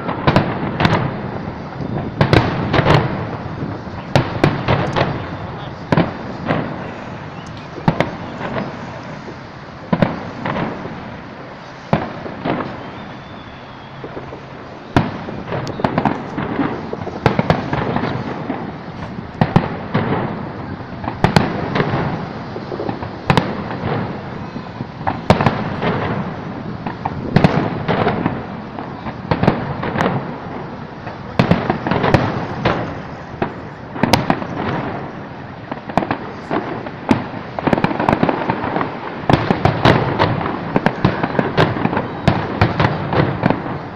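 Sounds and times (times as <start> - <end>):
rumbling: 0.0 - 13.2
fireworks bursting: 0.0 - 43.9.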